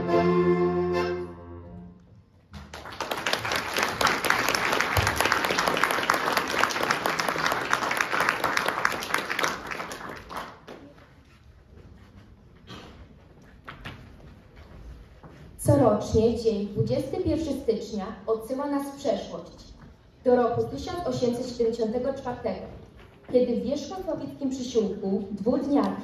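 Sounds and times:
accordion music: 0.0 - 2.0
audience applauding: 2.5 - 11.2.

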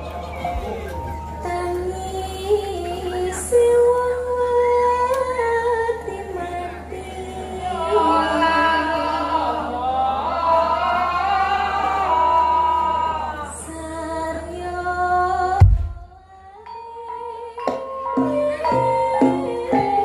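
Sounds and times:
steady low hum: 13.8 - 16.6.

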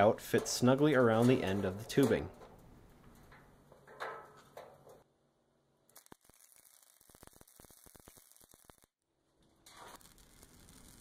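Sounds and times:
welder arc crackling: 5.9 - 9.0, 9.6 - 11.0.

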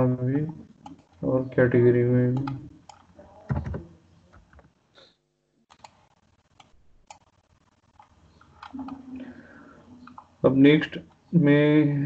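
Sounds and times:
mouse and keyboard clicks: 5.7 - 9.0.

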